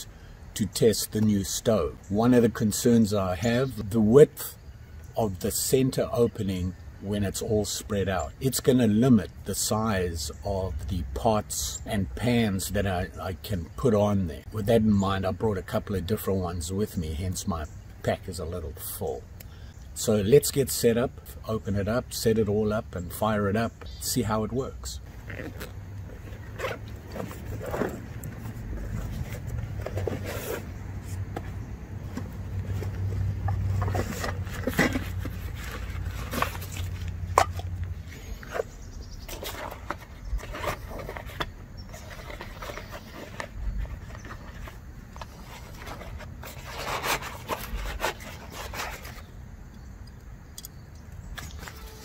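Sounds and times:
nylon sack rustling: 25.0s - 31.3s
zipper being pulled open: 25.2s - 29.2s.

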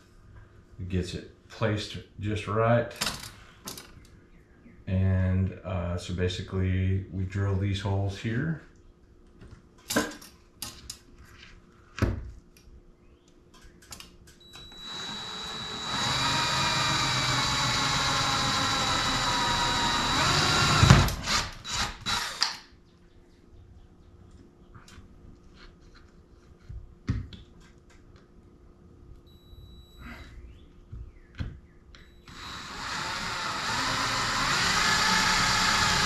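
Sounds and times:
cordless drill whining: 14.6s - 22.6s, 32.2s - 36.0s.

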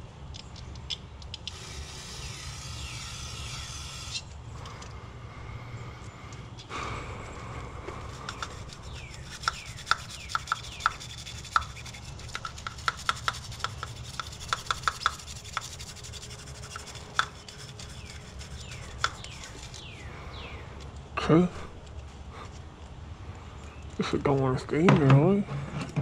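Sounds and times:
steady low hum: 0.0s - 26.0s
hand tool scraping and clicking metal: 7.9s - 20.0s.

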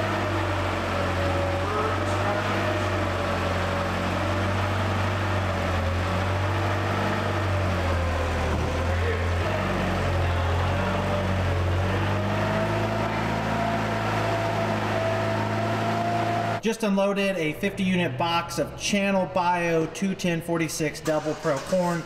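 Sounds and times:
forklift engine running: 0.0s - 16.6s.

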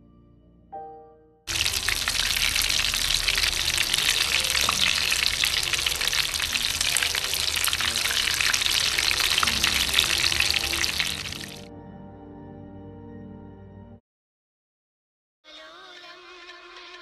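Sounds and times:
food deep-frying in oil: 1.5s - 11.7s.

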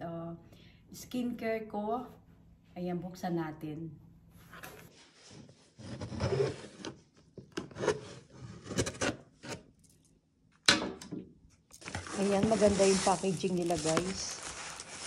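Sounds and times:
cardboard box scraping: 5.2s - 7.0s, 11.8s - 15.0s.

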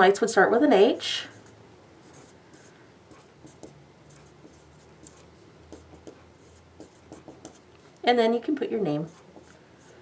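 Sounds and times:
pen scratching on paper: 1.3s - 7.7s, 9.0s - 10.0s.

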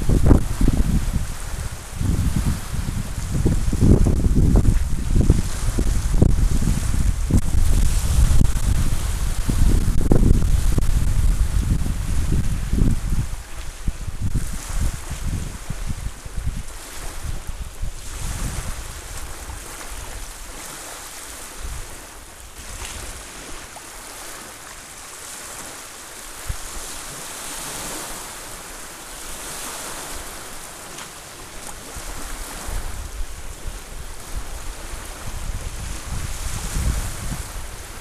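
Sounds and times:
wind buffeting microphone: 0.0s - 20.8s, 21.4s - 23.6s, 31.8s - 38.0s
waves lapping on beach: 0.0s - 38.0s.

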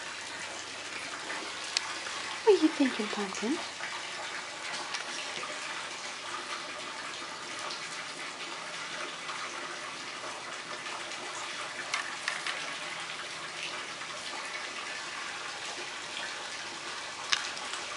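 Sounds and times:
rushing water: 0.0s - 17.9s
light taps and crinkles: 11.9s - 12.7s.

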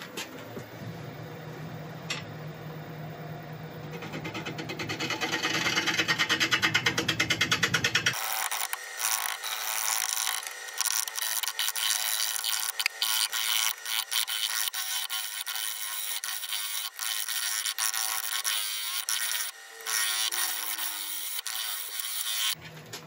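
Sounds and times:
gouge cutting wood chatter: 4.0s - 22.6s
wood lathe motor hum: 7.9s - 22.6s.

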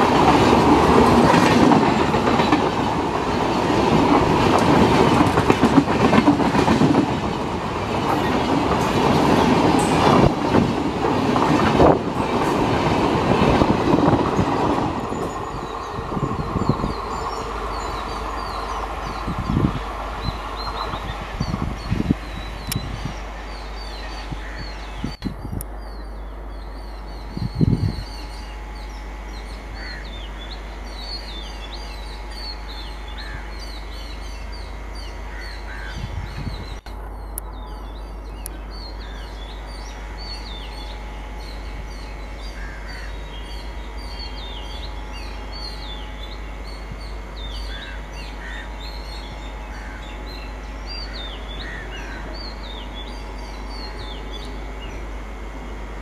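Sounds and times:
birds chirping and calling: 13.5s - 55.0s
low hum: 13.8s - 56.0s.

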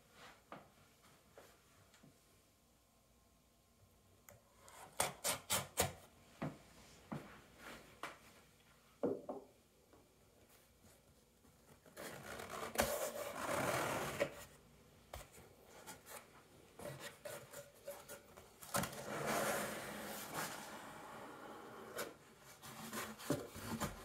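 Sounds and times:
cardboard rubbing and scraping: 12.0s - 14.5s, 18.8s - 24.0s.

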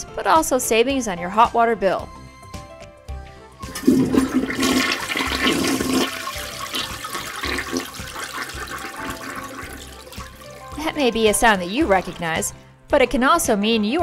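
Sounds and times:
toilet flushing: 3.6s - 11.1s.

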